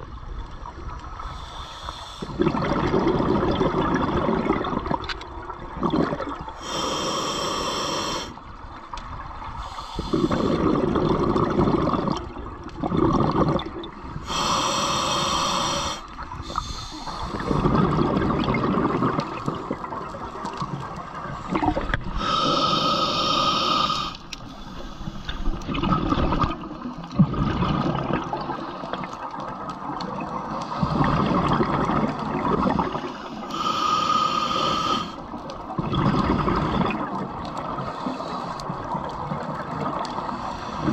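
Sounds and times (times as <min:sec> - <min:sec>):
underwater bubbling: 0:00.0 - 0:40.9
diver breathing through regulator: 0:01.2 - 0:02.4, 0:06.6 - 0:08.4, 0:09.6 - 0:10.8, 0:14.2 - 0:18.1, 0:21.5 - 0:25.6, 0:33.0 - 0:37.2, 0:40.2 - 0:40.9.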